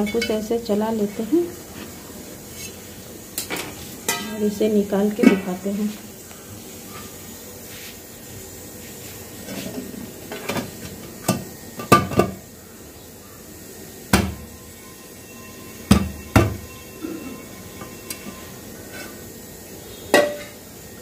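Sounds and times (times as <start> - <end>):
metal pot knocking on steel plate: 20.1 - 20.6.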